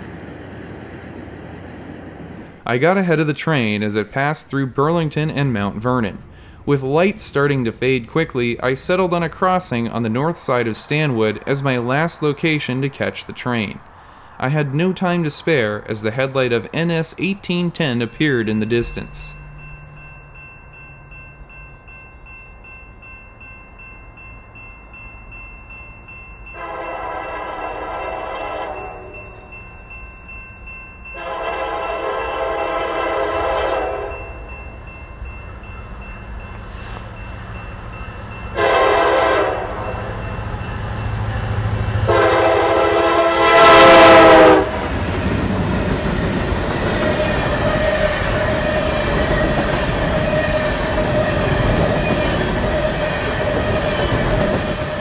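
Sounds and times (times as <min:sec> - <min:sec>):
train rumbling on rails: 0:00.0 - 0:02.8, 0:03.7 - 0:55.0
locomotive horn blasts: 0:26.6 - 0:29.3, 0:31.2 - 0:34.3, 0:38.6 - 0:40.2, 0:42.0 - 0:44.9.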